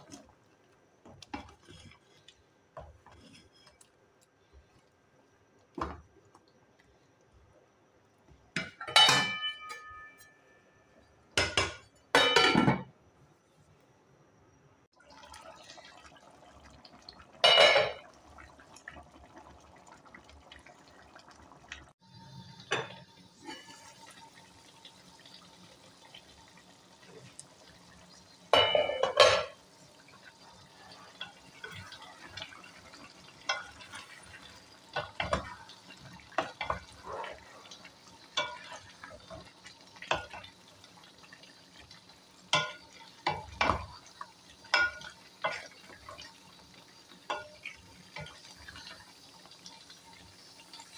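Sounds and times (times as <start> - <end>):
curry faintly sizzling: 0.0 - 12.5, 15.0 - 50.9
spatula scraping and tapping pot: 1.1 - 3.9
metal pot and lid clattering: 8.6 - 10.4, 11.4 - 12.9, 17.4 - 18.0, 28.5 - 29.6.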